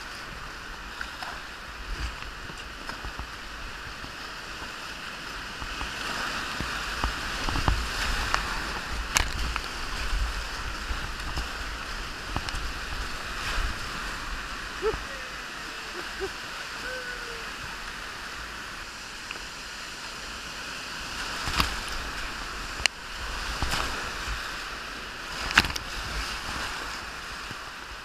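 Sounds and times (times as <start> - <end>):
whitewater rushing: 0.0 - 28.0
paddle knocks and splashes: 5.5 - 14.3, 21.3 - 22.5.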